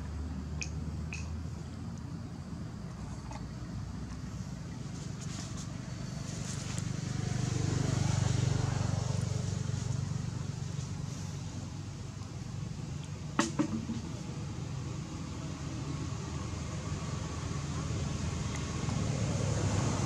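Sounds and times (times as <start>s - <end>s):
vehicle passing: 4.3s - 12.0s, 14.4s - 20.0s.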